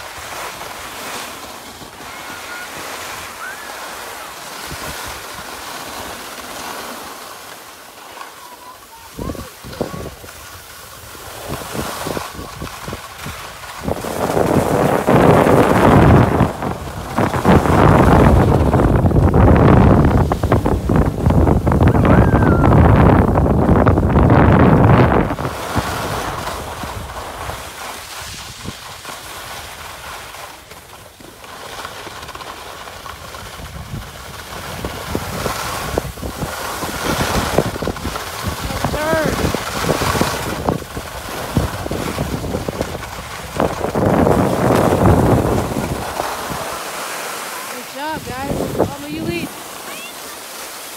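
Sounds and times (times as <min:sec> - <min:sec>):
skis scraping over snow: 0:00.0 - 0:50.9
wind rushing over microphone: 0:09.1 - 0:30.1, 0:33.1 - 0:50.1.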